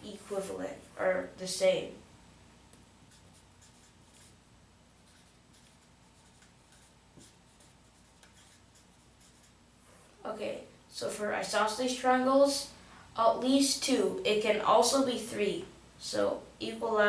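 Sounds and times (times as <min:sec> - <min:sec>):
marker writing on whiteboard: 0:03.0 - 0:04.4, 0:05.0 - 0:09.6.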